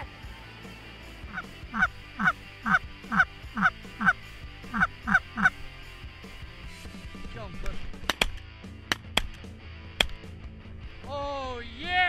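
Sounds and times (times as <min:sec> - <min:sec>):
goose honking: 0:01.3 - 0:05.6.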